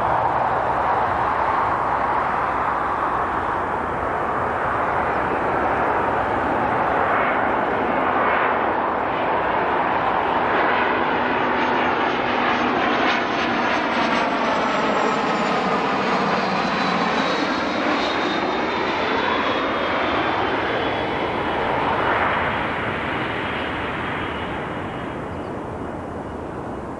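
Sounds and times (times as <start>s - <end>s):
high jet whine falling in pitch: 0.0s - 12.0s
jet engines roaring: 0.0s - 26.9s.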